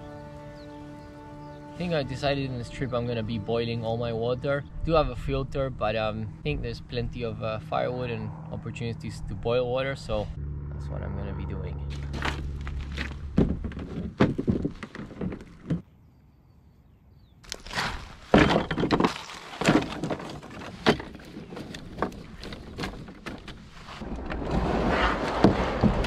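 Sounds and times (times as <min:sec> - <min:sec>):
firewood sticks clattering: 0:17.5 - 0:24.0
canoe scraping off shore: 0:17.6 - 0:26.0.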